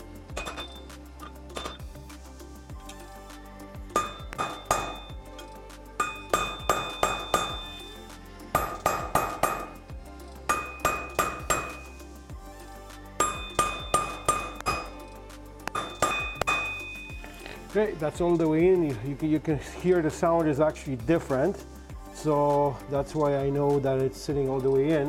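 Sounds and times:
hammer striking metal: 0:00.4 - 0:00.8, 0:01.5 - 0:01.8, 0:04.0 - 0:05.2, 0:06.0 - 0:07.9, 0:08.6 - 0:09.8, 0:10.5 - 0:12.0, 0:13.2 - 0:15.0, 0:15.6 - 0:17.3.

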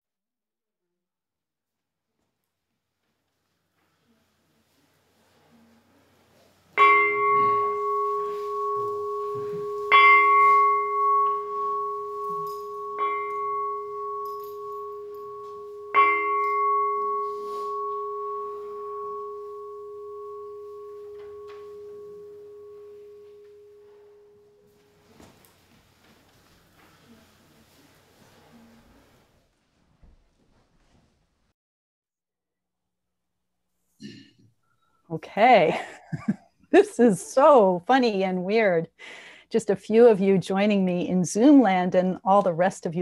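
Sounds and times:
temple bell ringing: 0:06.8 - 0:25.5.

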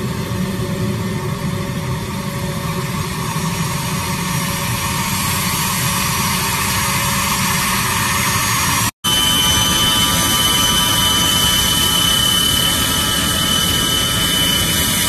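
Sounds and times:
jet engine rush and whine: 0:00.0 - 0:15.0.

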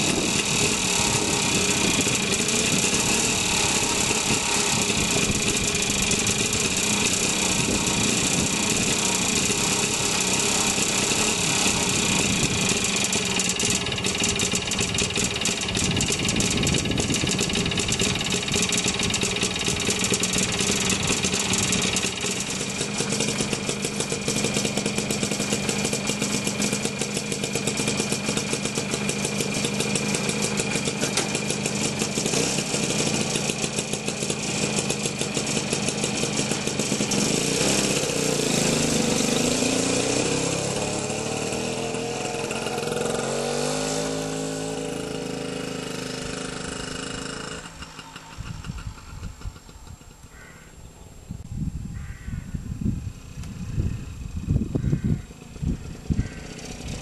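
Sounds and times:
motorcycle engine idling and pulling away: 0:00.0 - 0:57.0.

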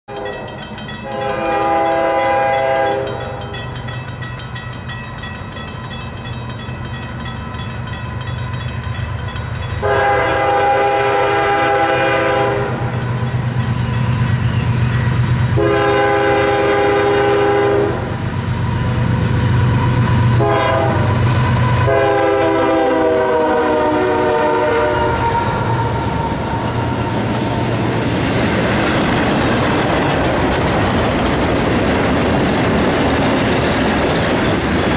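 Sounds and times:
locomotive air horn blasts: 0:01.0 - 0:03.4, 0:09.8 - 0:12.9, 0:15.6 - 0:18.2, 0:20.4 - 0:26.2
wheels clattering over rail joints: 0:27.2 - 0:34.9.

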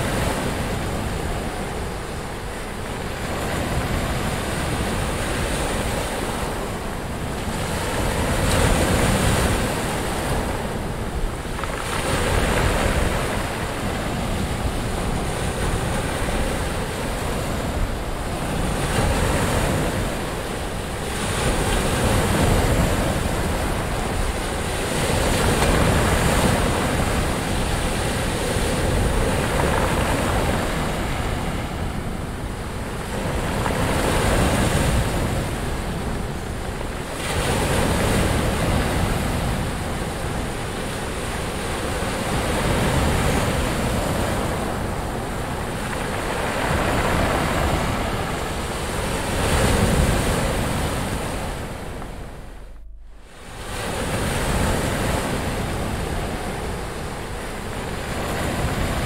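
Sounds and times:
waves breaking and washing in: 0:00.0 - 0:59.0.

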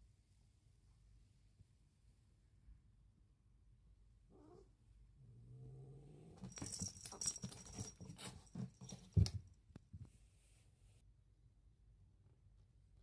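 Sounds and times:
cat growling: 0:04.3 - 0:06.5
paws scrabbling: 0:06.4 - 0:09.4.

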